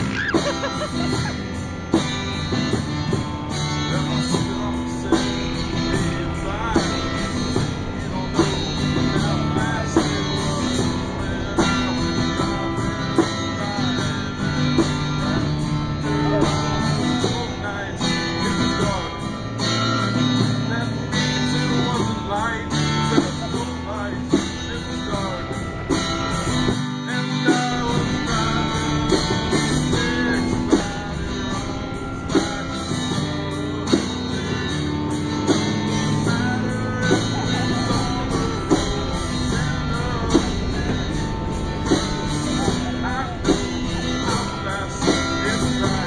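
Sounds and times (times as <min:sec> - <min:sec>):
guitar-led song with beat: 0:00.0 - 0:46.0.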